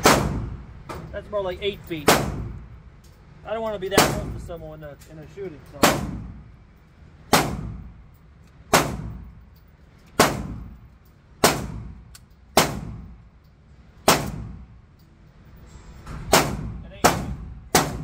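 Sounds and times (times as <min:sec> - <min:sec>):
gunshots echoing indoors: 0:00.0 - 0:00.7, 0:02.1 - 0:02.6, 0:05.8 - 0:06.4, 0:07.2 - 0:08.0, 0:08.7 - 0:09.3, 0:10.1 - 0:10.8, 0:11.4 - 0:13.2, 0:14.0 - 0:14.7, 0:16.3 - 0:18.0.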